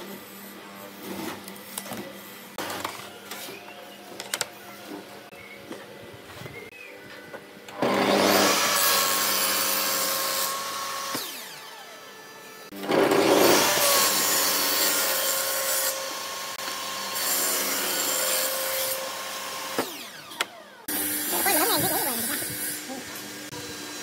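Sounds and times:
saw motor hum and whine: 7.4 - 24.0
table saw cutting wood: 7.7 - 24.0.

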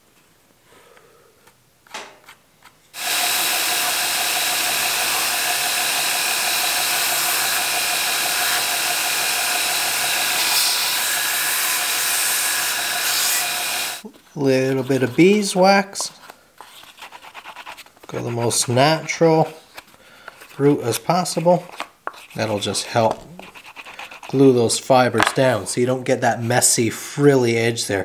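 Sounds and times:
belt grinder whining: 3.0 - 14.0.

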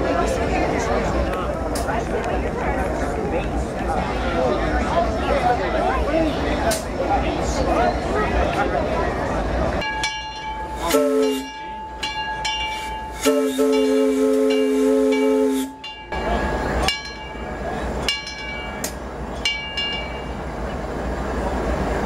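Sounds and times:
bell striking: 9.8 - 20.3
locomotive whistle blasts: 10.8 - 11.6, 13.1 - 15.8.

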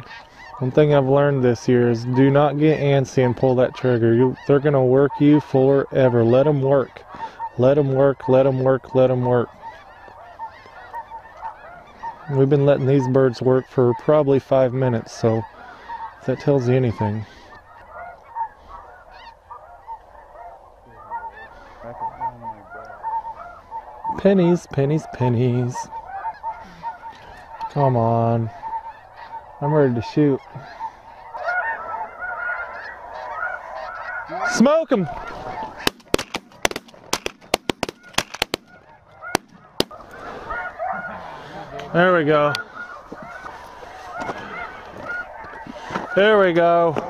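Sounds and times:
flock of geese honking: 0.0 - 47.0
shotgun fire: 35.9 - 38.7.

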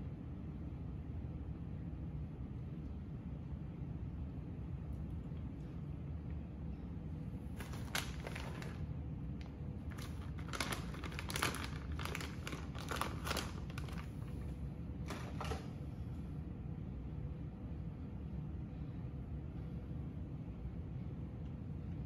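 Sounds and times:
plastic bag crinkling: 7.5 - 15.8.

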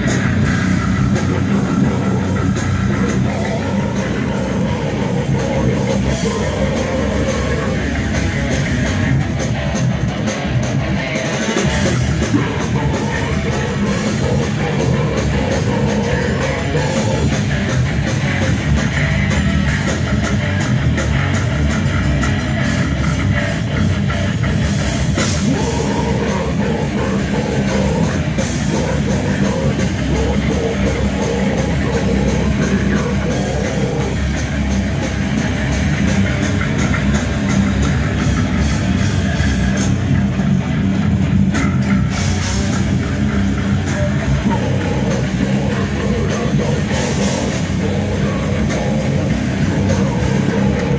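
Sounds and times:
heavy metal band playing live: 0.0 - 50.9.

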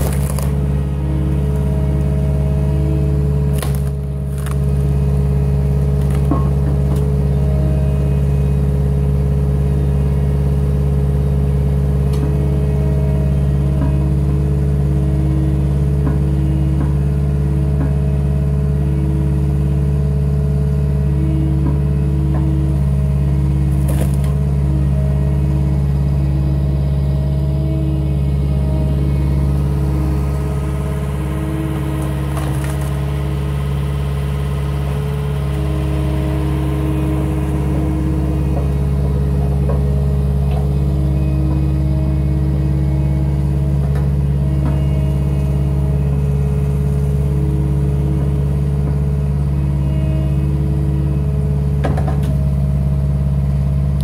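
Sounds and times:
log cracking as it splits: 0.0 - 0.6, 3.4 - 5.0, 5.8 - 6.5, 32.0 - 33.0
diesel engine running under load: 0.0 - 54.0
hydraulics whine: 0.0 - 54.0.

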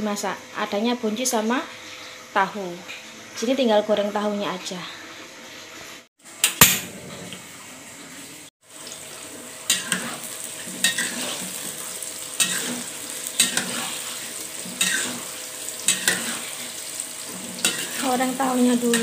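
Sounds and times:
tofu sizzling in hot oil: 8.6 - 19.0
spatula scraping a wok: 9.7 - 19.0.

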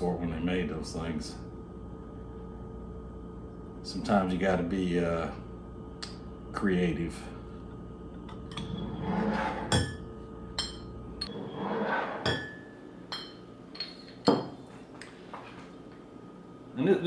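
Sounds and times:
glass bottles clinking: 12.2 - 14.6.

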